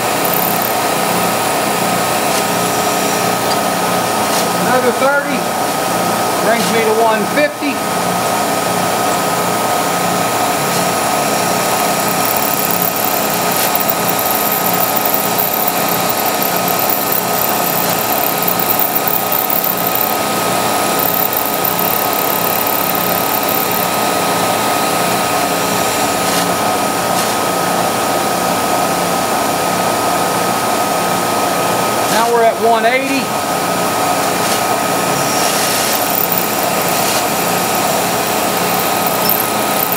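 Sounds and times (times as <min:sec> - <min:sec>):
milling machine whine: 0:00.0 - 0:04.6, 0:08.9 - 0:27.0, 0:33.3 - 0:39.9.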